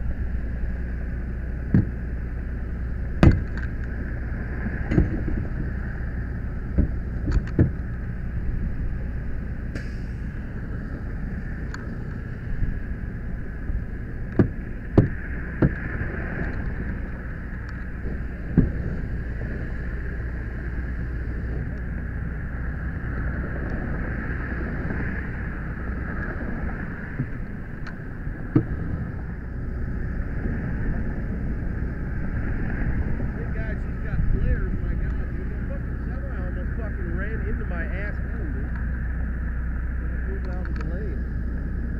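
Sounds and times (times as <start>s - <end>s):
sharp knocks: 1.7s - 2.0s, 3.2s - 3.6s, 14.3s - 15.8s.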